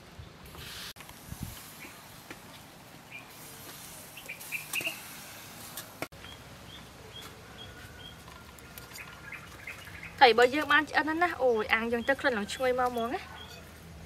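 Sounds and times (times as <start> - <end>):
small birds chirping: 3.0 - 3.4, 4.1 - 5.1, 6.1 - 13.7.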